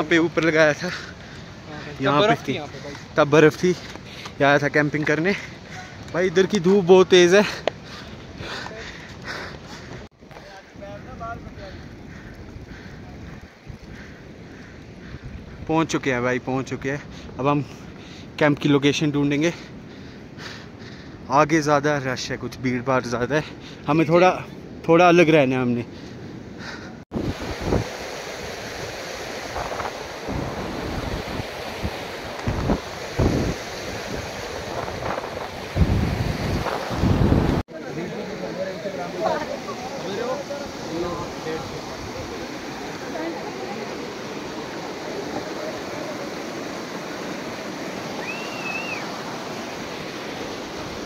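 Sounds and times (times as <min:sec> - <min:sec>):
stream rushing over rocks: 0:00.0 - 0:09.1, 0:27.2 - 0:51.0
wind buffeting microphone: 0:07.5 - 0:15.8, 0:29.4 - 0:37.6
faint high whistle: 0:48.2 - 0:49.1.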